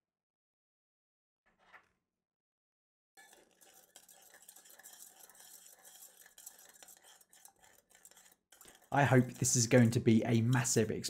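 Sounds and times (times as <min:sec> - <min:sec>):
spoon stirring in metal jug: 0:03.2 - 0:11.0.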